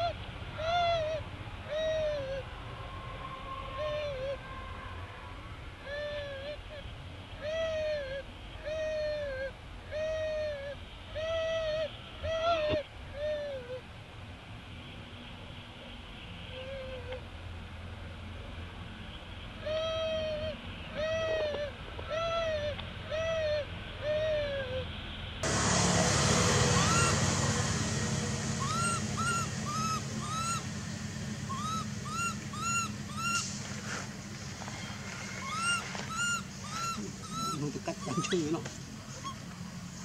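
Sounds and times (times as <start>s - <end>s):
baby monkey crying coo: 0.0s - 2.5s, 3.8s - 4.4s, 5.8s - 6.8s, 7.4s - 13.8s, 19.6s - 24.9s, 26.7s - 27.4s, 28.5s - 30.8s, 31.4s - 33.5s, 34.7s - 39.5s
background hiss: 25.5s - 40.0s.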